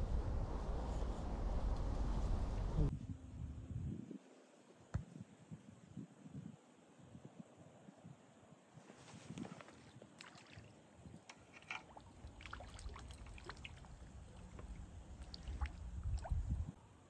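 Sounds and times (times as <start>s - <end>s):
low rumble: 0.0s - 4.0s
water splashing and trickling: 9.3s - 16.8s.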